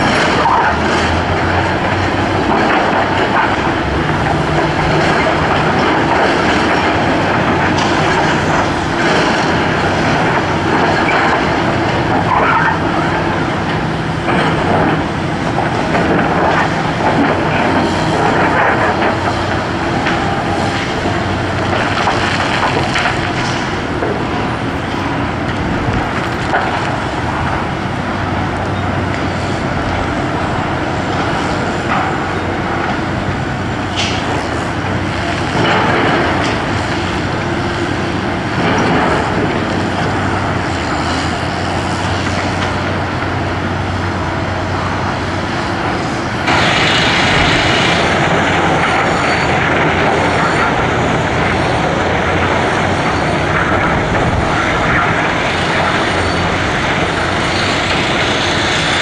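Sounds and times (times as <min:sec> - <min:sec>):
diesel engine running under load: 0:00.0 - 0:59.0.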